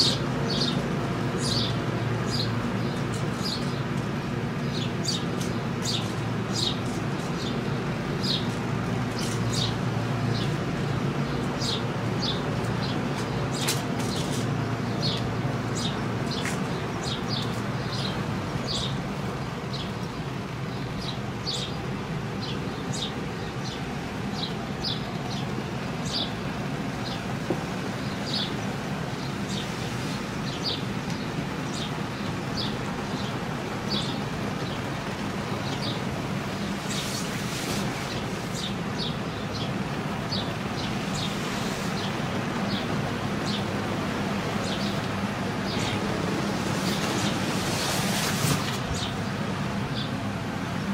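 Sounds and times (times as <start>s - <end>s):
bird chirping: 0.0s - 3.9s, 4.6s - 26.4s, 28.0s - 29.7s, 30.4s - 34.9s, 44.5s - 48.0s.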